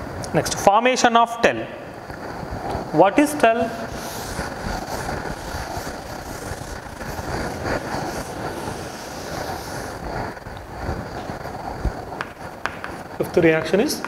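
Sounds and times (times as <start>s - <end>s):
board duster scrubbing chalkboard: 3.2s - 10.4s.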